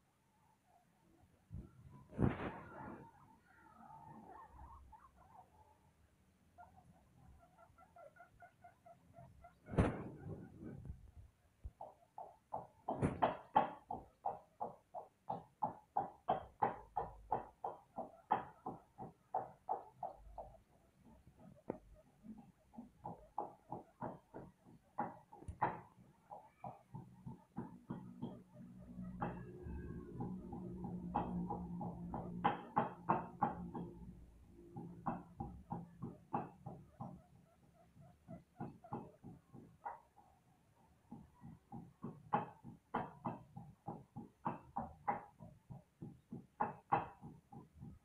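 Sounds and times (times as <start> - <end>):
guinea pigs squeaking: 1.9 - 10.9, 17.3 - 33.9, 35.0 - 40.2.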